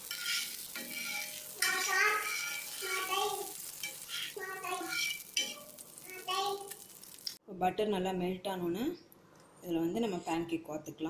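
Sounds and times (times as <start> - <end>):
spatula scraping griddle: 0.0 - 6.2
butter sizzling and bubbling: 0.0 - 7.4.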